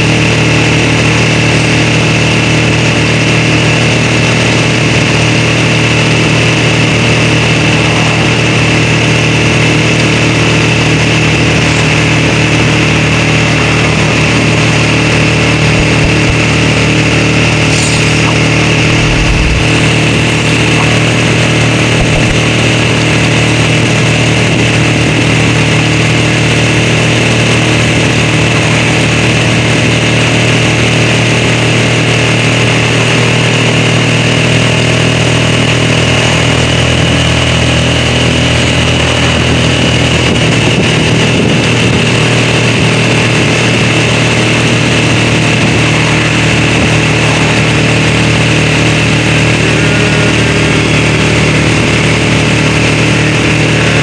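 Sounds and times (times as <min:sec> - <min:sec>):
vehicle engine droning: 0:00.0 - 0:54.0.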